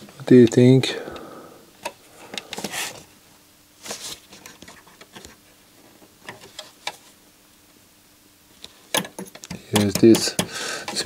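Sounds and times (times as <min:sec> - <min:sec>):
fingers clicking on electronic parts: 0:08.9 - 0:11.0.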